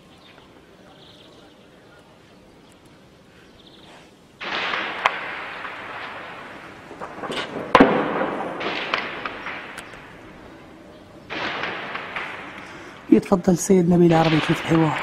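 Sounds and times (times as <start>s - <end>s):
sharp gunshot cracks: 4.4s - 10.3s, 11.2s - 13.2s, 14.1s - 15.0s
gunfire bursts: 4.4s - 10.6s, 11.2s - 15.0s.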